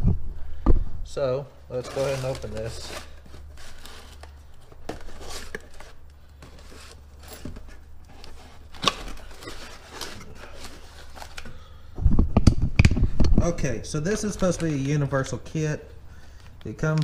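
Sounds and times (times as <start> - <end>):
low steady hum: 0.0 - 17.0
packaging rustling and scraping: 1.7 - 11.8, 13.8 - 17.0.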